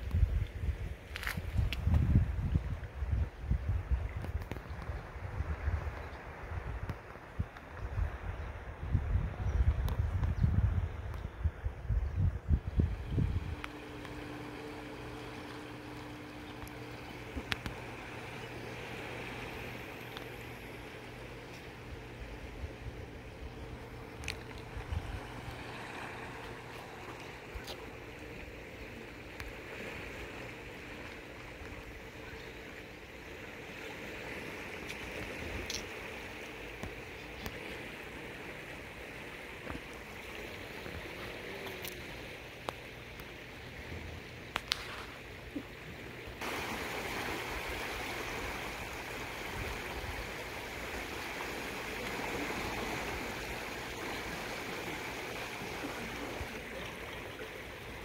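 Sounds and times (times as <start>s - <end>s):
river current rushing: 12.8s - 37.1s, 46.4s - 58.0s.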